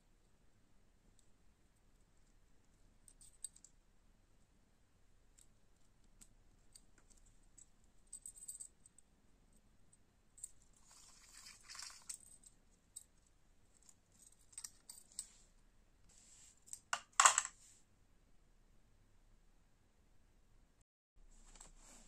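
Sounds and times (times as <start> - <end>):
metallic clatter set down: 17.0 - 17.5.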